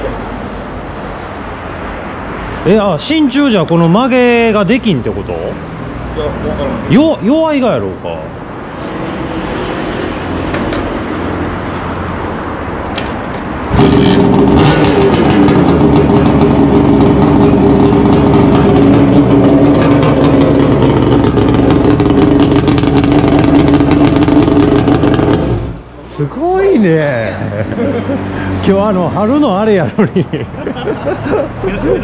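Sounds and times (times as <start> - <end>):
motorcycle two-stroke engine: 13.7 - 25.8.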